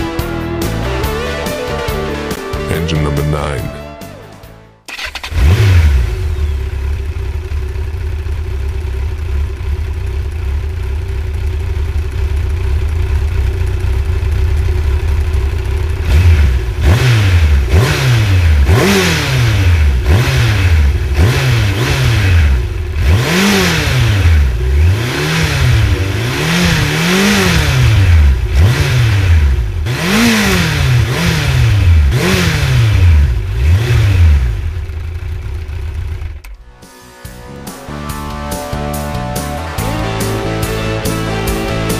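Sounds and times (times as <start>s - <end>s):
motorcycle engine revving: 4.9s - 36.7s
motorcycle engine idling: 5.0s - 24.7s, 25.3s - 33.6s, 34.2s - 36.6s.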